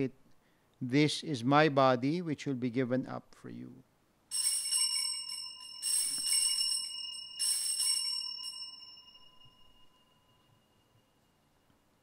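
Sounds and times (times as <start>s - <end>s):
altar bells ringing: 4.3s - 11.6s.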